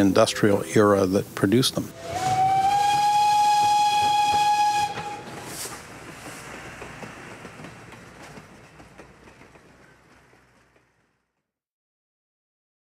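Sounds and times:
train wheels clicking over rails: 0:00.0 - 0:11.5
steam locomotive whistle: 0:01.8 - 0:05.8.

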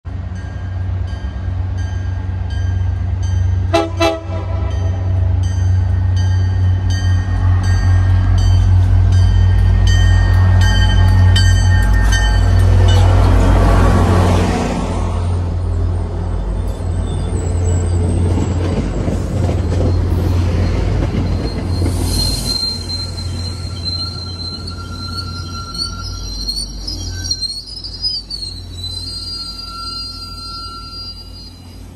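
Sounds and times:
locomotive engine rumbling: 0:00.1 - 0:31.9
locomotive bell ringing: 0:00.3 - 0:13.8, 0:19.4 - 0:31.8
train horn blast: 0:03.7 - 0:05.4
train wheel squeal: 0:06.9 - 0:14.3, 0:15.2 - 0:31.9.

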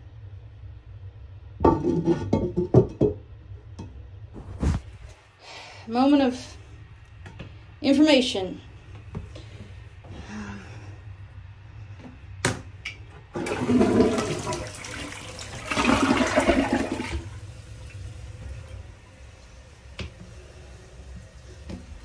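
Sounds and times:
toilet flushing water rushing: 0:13.3 - 0:22.0
toilet flush click: 0:13.4 - 0:18.8.

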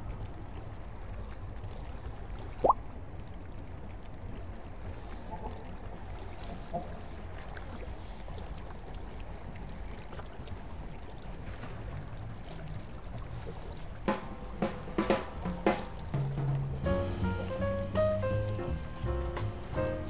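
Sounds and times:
faint watery wash: 0:00.0 - 0:20.0
low rumbling noise: 0:13.9 - 0:20.0
sharp drum hits: 0:14.1 - 0:20.0.

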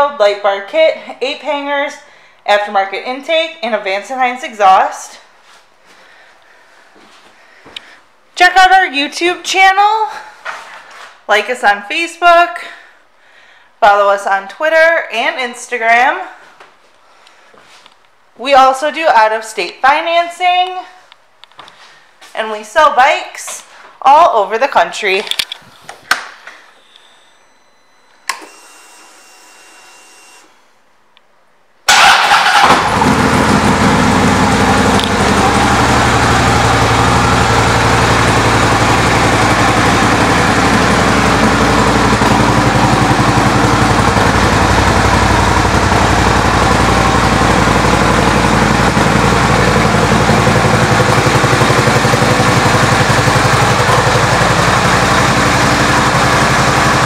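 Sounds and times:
faint starter whir: 0:31.9 - 0:57.0
motorcycle engine idling: 0:32.0 - 0:57.0.

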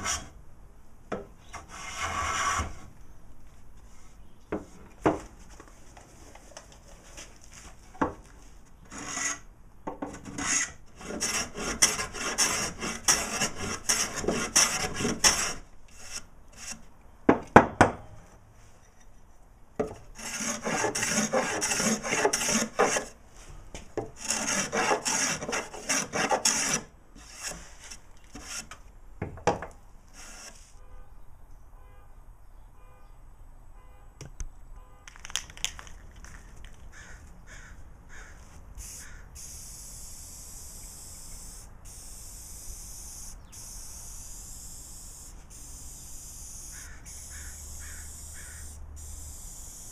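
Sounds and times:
hand plane shaving wood: 0:08.9 - 0:09.4, 0:10.3 - 0:16.8, 0:20.2 - 0:23.2, 0:24.2 - 0:28.7.

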